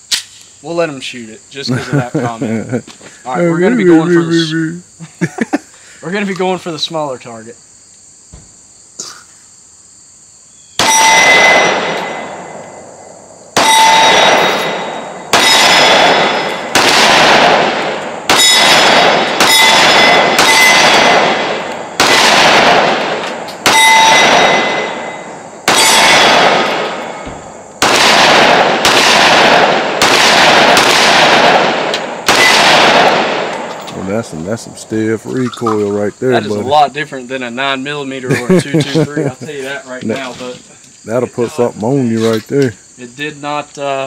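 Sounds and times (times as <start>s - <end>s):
pistol shots echoing: 10.8s - 12.9s, 13.5s - 33.9s
steel target ringing: 10.8s - 16.8s, 18.3s - 21.2s, 23.6s - 27.2s.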